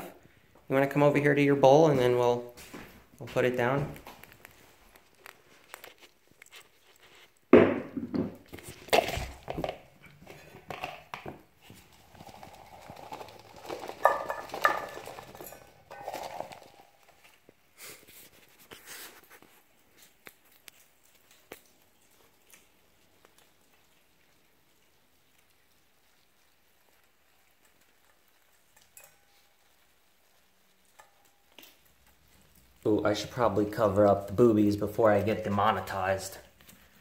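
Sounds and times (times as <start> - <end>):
food tipped into metal bowl: 7.6 - 17.2
plastic cup clatter and rustling: 7.6 - 17.6.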